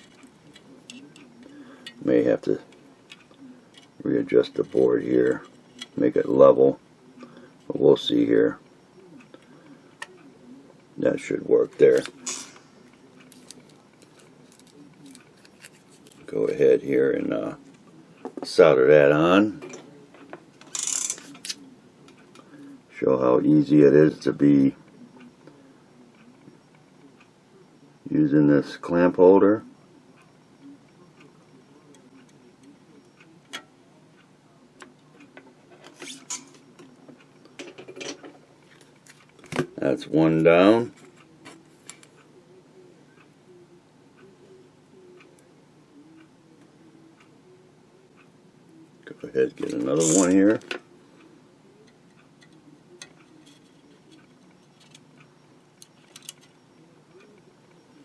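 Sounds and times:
low steady hum: 0.0s - 58.0s
small clicks of handled wires: 13.3s - 16.3s, 55.8s - 56.6s.

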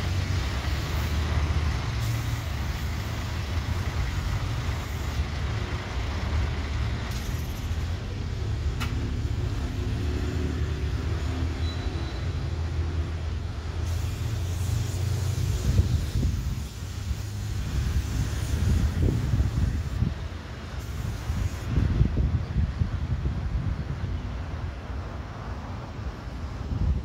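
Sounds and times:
road traffic rumble: 0.0s - 27.0s
sharp click: 8.8s - 9.0s.

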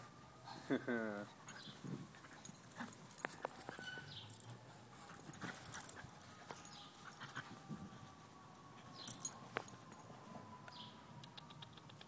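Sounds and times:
dogs scuffling while playing: 1.5s - 7.8s.

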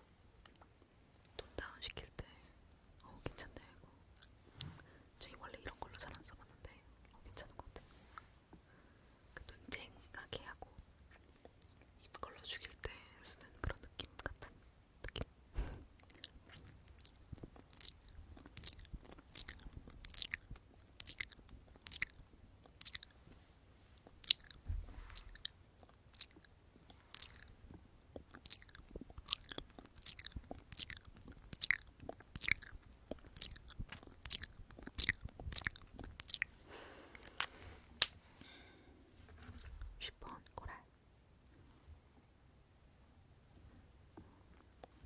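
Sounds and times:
soft rustle: 7.4s - 11.6s, 23.1s - 25.6s, 36.5s - 40.0s
tongue clicks: 16.0s - 23.2s, 24.0s - 36.5s
wet lip smacks: 16.0s - 23.2s, 24.0s - 27.5s, 28.1s - 36.5s, 37.1s - 38.2s.

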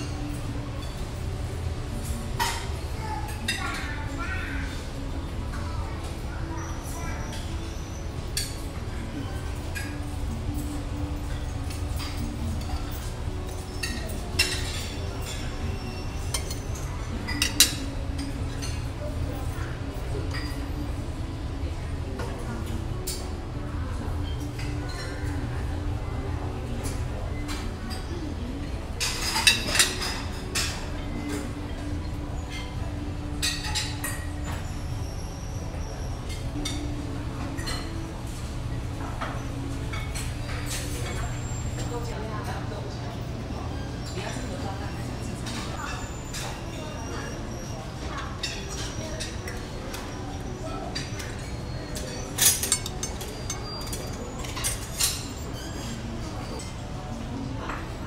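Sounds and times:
low background hum: 0.0s - 58.0s
metal tongs clinking on ceramic plates: 11.3s - 18.9s, 29.0s - 31.9s, 50.9s - 55.9s
metal ladle clinking on ceramic: 52.4s - 55.2s.

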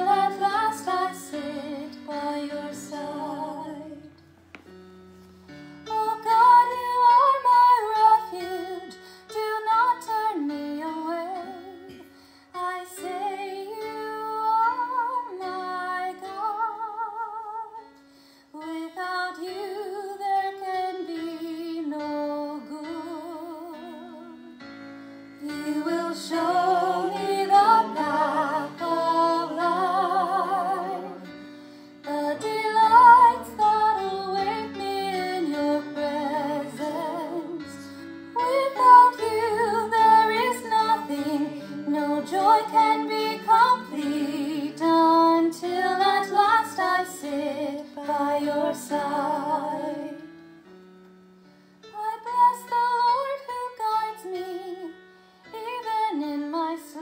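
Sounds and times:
woman singing: 5.9s - 12.0s, 12.6s - 17.9s, 18.6s - 24.6s, 32.0s - 50.2s, 51.9s - 57.0s.

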